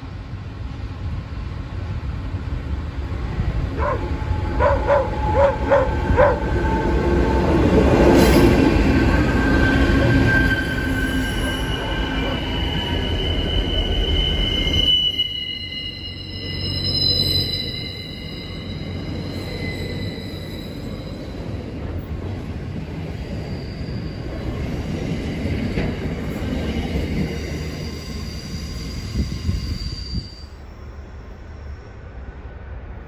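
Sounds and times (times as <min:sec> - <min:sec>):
dog barks: 0:03.8 - 0:06.5
wheels squealing on curve: 0:09.2 - 0:21.4, 0:23.3 - 0:24.6, 0:27.1 - 0:30.7.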